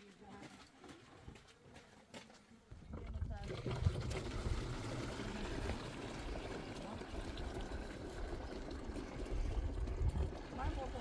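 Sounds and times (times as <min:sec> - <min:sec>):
water pouring from jerrycan: 0:02.8 - 0:11.0.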